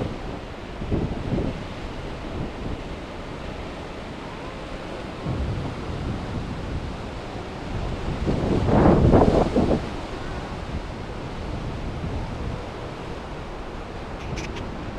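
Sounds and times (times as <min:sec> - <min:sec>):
wind buffeting microphone: 0:00.0 - 0:14.9
surf breaking on rocks: 0:04.6 - 0:14.9.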